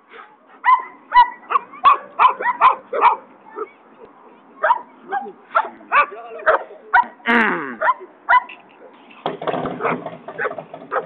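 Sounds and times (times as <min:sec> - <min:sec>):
dog barking: 0:00.6 - 0:03.7, 0:04.6 - 0:04.9, 0:05.5 - 0:07.2, 0:09.8 - 0:11.0.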